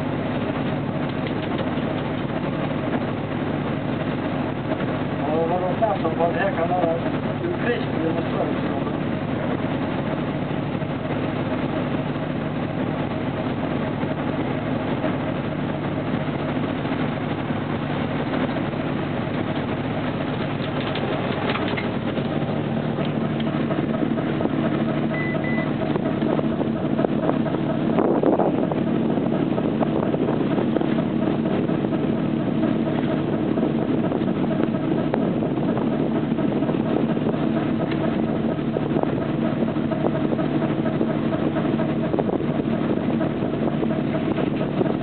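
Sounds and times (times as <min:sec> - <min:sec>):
boat engine drone: 0:00.0 - 0:45.0
short high beep: 0:25.1 - 0:25.8.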